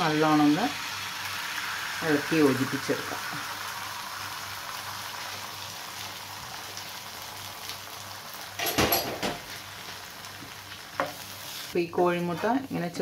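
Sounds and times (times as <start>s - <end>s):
egg sizzling in a frying pan: 0.0s - 13.0s.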